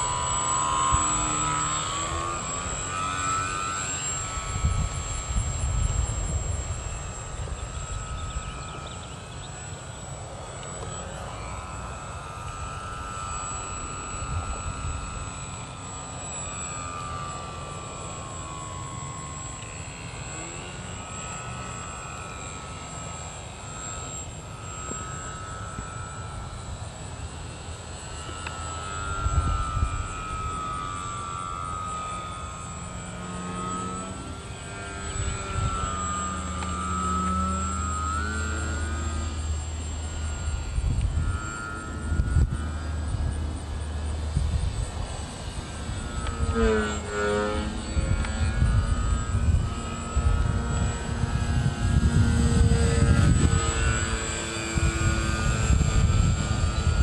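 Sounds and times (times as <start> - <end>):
propeller airplane engine droning: 0.0 - 57.0.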